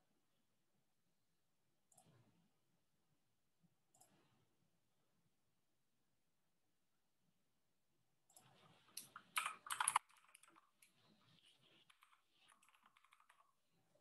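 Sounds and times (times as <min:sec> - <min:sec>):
keyboard keys clicking: 0:09.0 - 0:10.9, 0:11.9 - 0:13.6.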